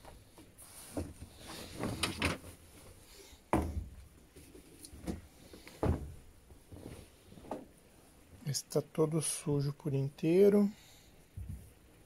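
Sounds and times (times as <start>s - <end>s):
cloth rustling: 4.2s - 7.8s.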